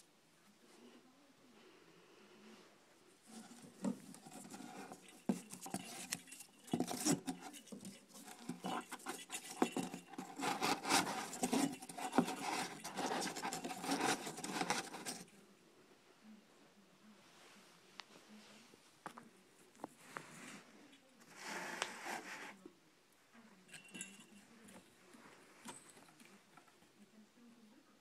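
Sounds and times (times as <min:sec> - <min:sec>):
kitten claws scratching cardboard: 0:03.4 - 0:15.2.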